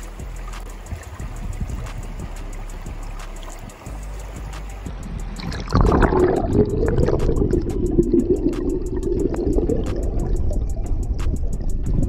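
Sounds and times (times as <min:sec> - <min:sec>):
muffled underwater river rush: 0:00.0 - 0:12.0
microphone plunging into water: 0:05.2 - 0:12.0.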